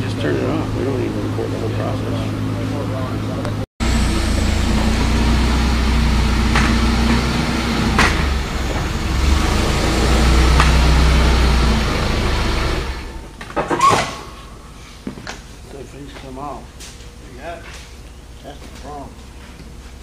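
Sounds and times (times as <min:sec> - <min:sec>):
forklift engine running: 0:00.0 - 0:13.6.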